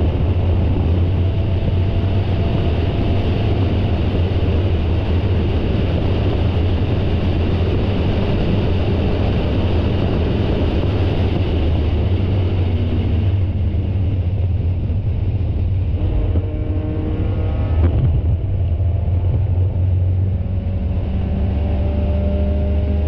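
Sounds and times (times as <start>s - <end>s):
race car engine drone: 0.0s - 23.0s
road noise: 0.0s - 23.0s
wind noise: 0.0s - 23.0s.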